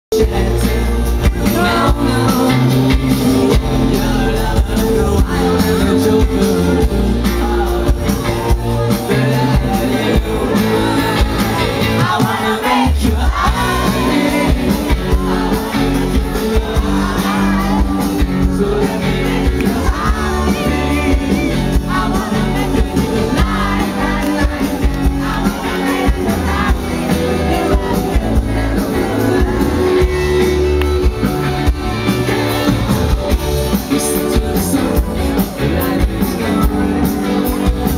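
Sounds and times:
person singing: 0:00.1 - 0:37.9
rock band through loudspeakers: 0:00.1 - 0:37.9.

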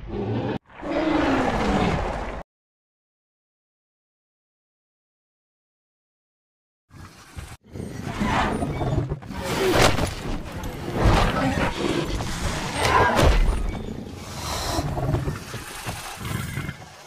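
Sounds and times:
dinosaur growls: 0:14.2 - 0:17.0.

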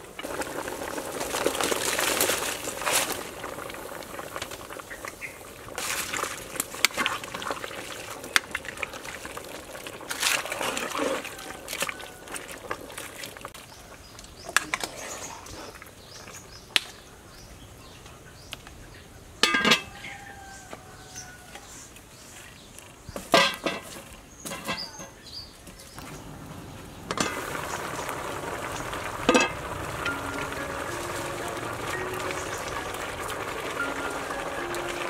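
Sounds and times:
scraping and sloshing in pot: 0:05.7 - 0:13.6
metal lid clanging on pot: 0:19.4 - 0:20.0, 0:23.3 - 0:25.2.

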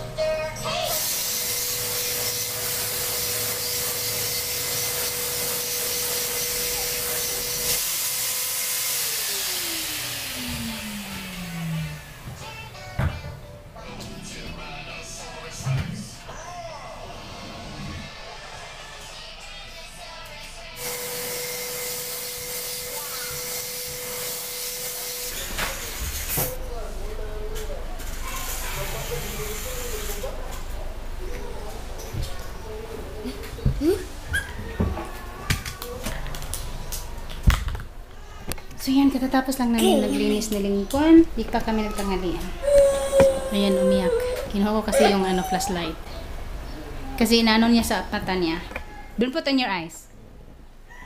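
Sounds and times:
small motor hissing and whining: 0:00.7 - 0:12.6, 0:20.8 - 0:26.6, 0:28.1 - 0:30.3
vacuum cleaner running: 0:00.7 - 0:13.0, 0:20.8 - 0:30.6, 0:42.4 - 0:45.9.

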